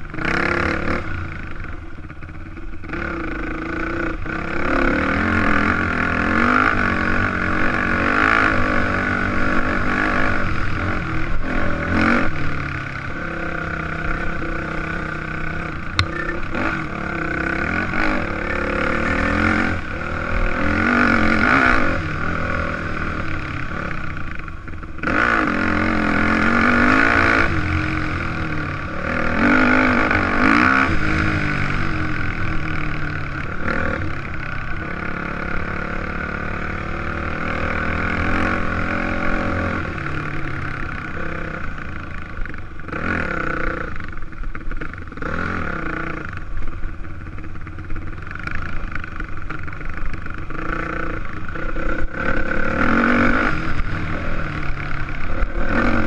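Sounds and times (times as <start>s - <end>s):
dirt bike engine revving: 0.1s - 1.6s, 2.8s - 24.4s, 25.0s - 44.2s, 48.0s - 56.0s
sharp knock: 16.0s - 16.4s.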